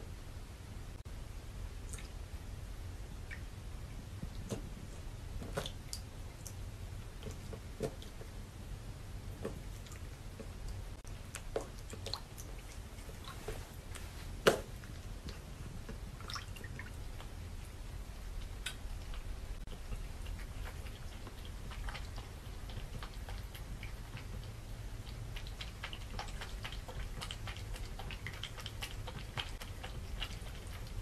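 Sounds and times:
small water splashes and drips: 1.9s - 2.2s, 9.4s - 13.6s, 14.4s - 17.4s, 18.4s - 31.0s.

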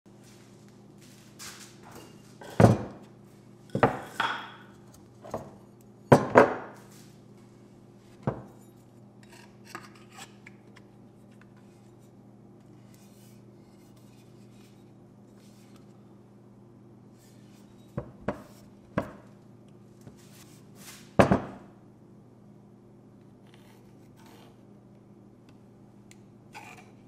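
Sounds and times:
tools knocking on wooden workbench: 18.0s - 19.2s, 21.2s - 21.6s.

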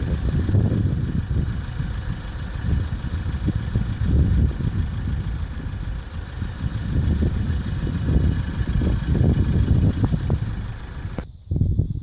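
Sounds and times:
wind buffeting microphone: 0.0s - 12.0s.

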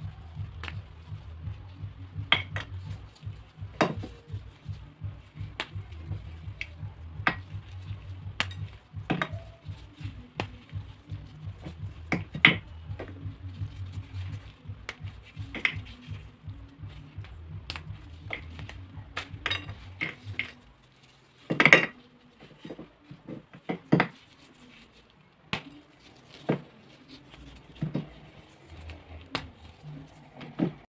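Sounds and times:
low pulsing hum: 0.0s - 20.8s
dry clay cracking and snapping: 0.1s - 1.6s, 2.3s - 20.7s, 23.7s - 30.1s.

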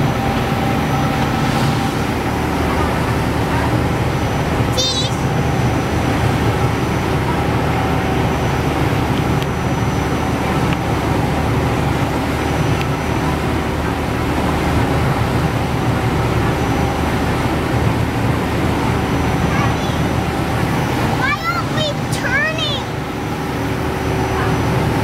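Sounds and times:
ferry engine droning: 0.0s - 25.0s.

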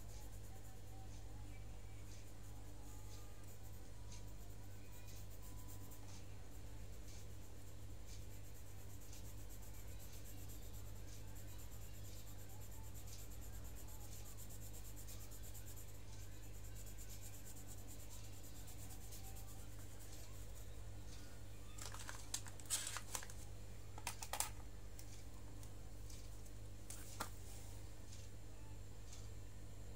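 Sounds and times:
pencil scratching on paper: 0.0s - 21.2s
steady low hum: 0.0s - 29.9s.

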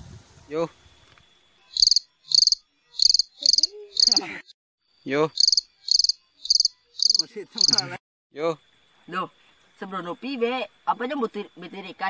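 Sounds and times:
cricket chirps: 0.5s - 12.0s.

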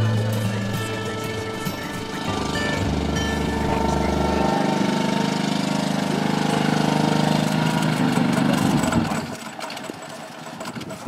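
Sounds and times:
boat engine idling: 0.0s - 11.0s.

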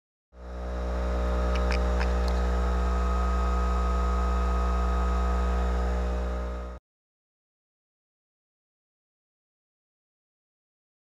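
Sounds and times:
aircraft electrical hum: 0.4s - 6.8s.

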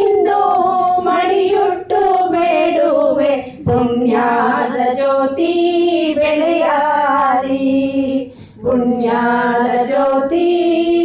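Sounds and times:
singer breathing: 8.3s - 8.6s.

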